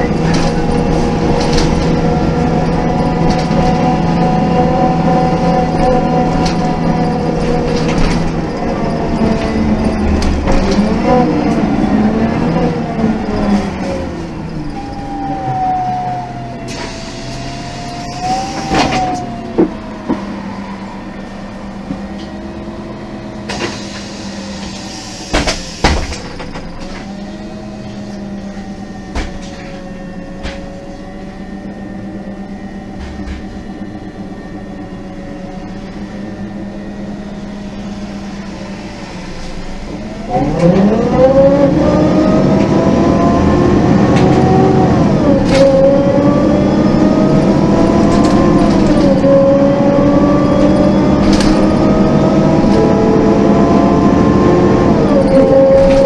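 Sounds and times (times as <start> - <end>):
bus engine idling and revving: 0.0 - 56.0
air brake hisses with clicks: 16.7 - 17.6, 23.5 - 26.2.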